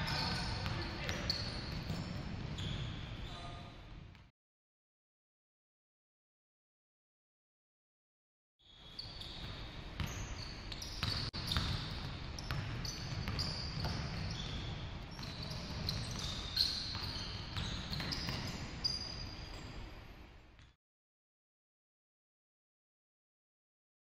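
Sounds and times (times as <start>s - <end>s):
sneakers squeaking: 0.0s - 3.7s, 8.7s - 20.0s
basketball bouncing: 11.0s - 14.5s.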